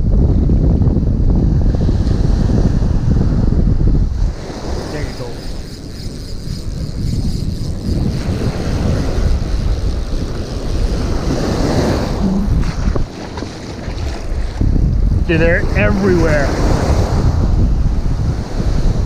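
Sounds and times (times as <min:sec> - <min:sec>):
wind buffeting microphone: 0:00.0 - 0:19.0
surf breaking: 0:04.2 - 0:16.9.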